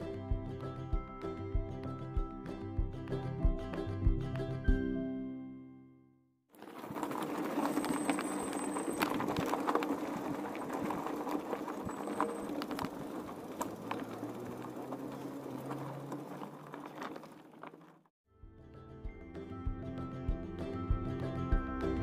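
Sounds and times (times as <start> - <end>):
bike tyres crunching on gravel: 6.5 - 18.1
bike rattling with clicks: 6.6 - 18.0.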